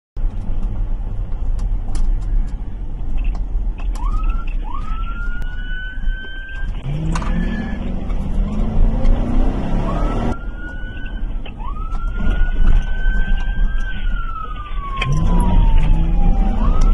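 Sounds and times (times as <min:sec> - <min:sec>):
road noise: 0:00.2 - 0:16.9
police siren sweeps: 0:04.0 - 0:16.9
car engine accelerating: 0:06.7 - 0:16.9.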